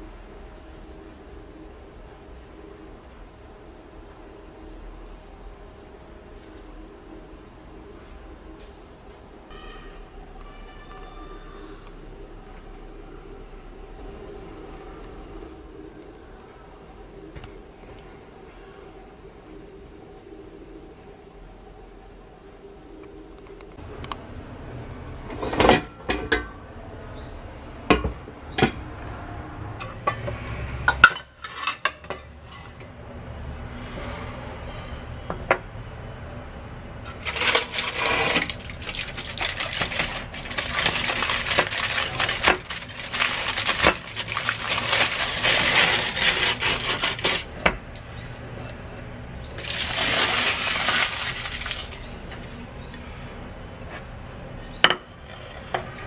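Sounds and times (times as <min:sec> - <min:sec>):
aluminium foil crinkling: 0:37.1 - 0:47.5, 0:49.6 - 0:52.6.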